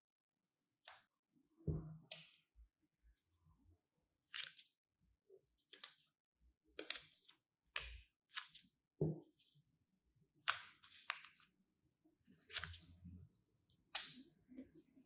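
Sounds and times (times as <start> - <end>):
scissors snipping paper: 10.4 - 11.4.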